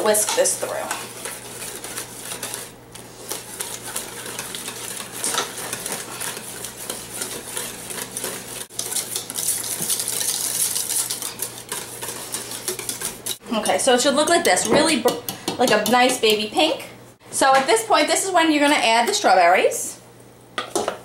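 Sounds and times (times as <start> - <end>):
whisk scraping in metal pot: 0.0 - 16.4.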